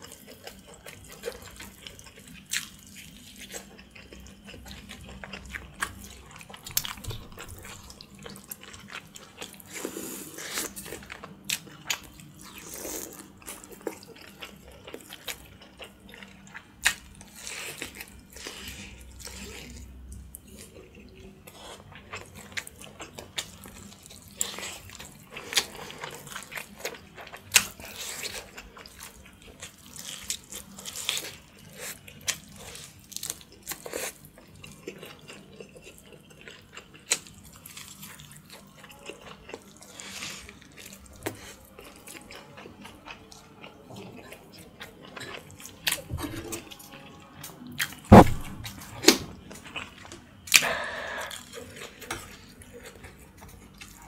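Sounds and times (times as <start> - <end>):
loud sharp knocks: 48.1 - 48.7.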